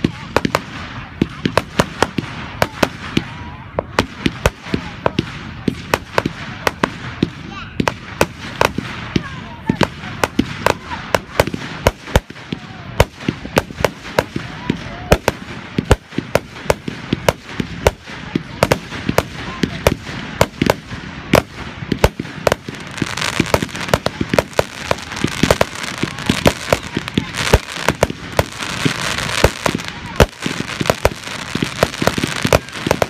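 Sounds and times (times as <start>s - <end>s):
fireworks bangs: 0.0s - 33.0s
crackling hiss: 15.2s - 33.0s.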